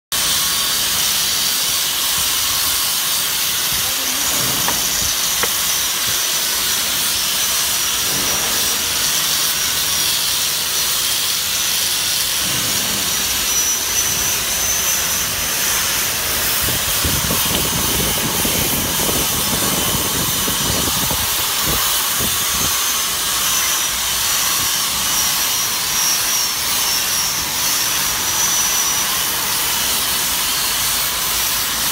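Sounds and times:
wet polisher whining: 0:00.2 - 0:12.4, 0:13.2 - 0:31.9
pad scrubbing on stone: 0:02.8 - 0:07.2.

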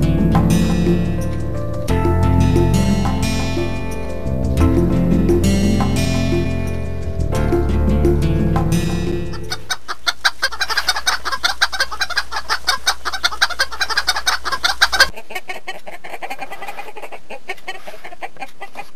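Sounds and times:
music: 0:00.0 - 0:09.7
chickens clucking: 0:09.3 - 0:18.9.

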